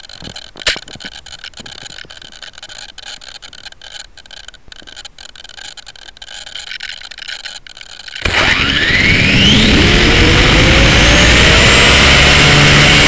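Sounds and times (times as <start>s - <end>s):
faint clicks: 0.0s - 8.3s.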